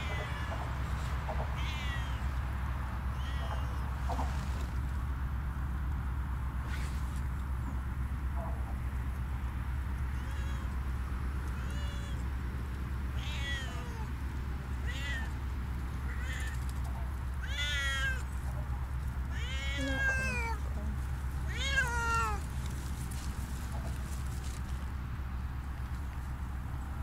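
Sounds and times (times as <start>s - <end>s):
cat meowing: 0.0s - 0.7s, 1.4s - 2.3s, 3.1s - 3.9s, 10.1s - 10.8s, 11.5s - 12.3s, 13.1s - 15.4s, 16.0s - 16.8s, 17.4s - 18.3s, 19.3s - 20.6s, 21.4s - 22.5s.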